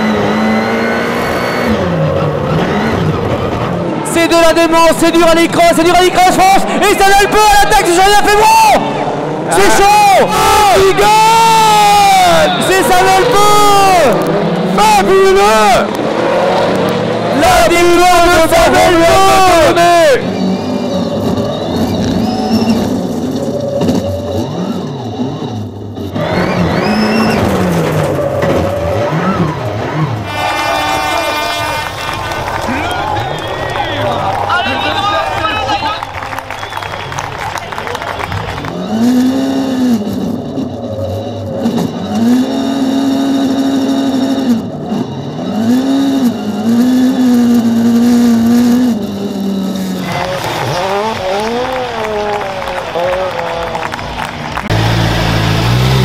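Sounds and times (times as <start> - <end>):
race car engine revving: 0.0 - 56.0
race car passing by: 48.7 - 56.0.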